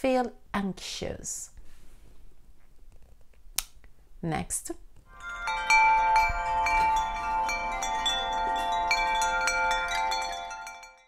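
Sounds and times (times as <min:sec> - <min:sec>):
tinkling metal chimes: 0:05.1 - 0:11.0.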